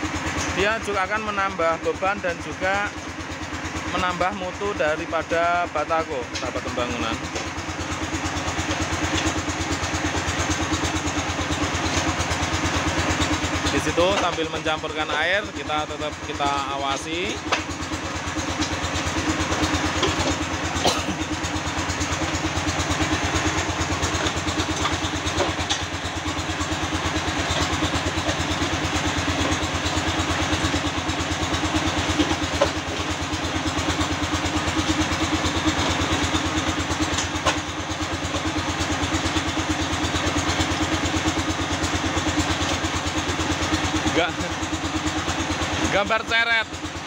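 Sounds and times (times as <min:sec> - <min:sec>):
concrete mixer running: 0:00.0 - 0:47.0.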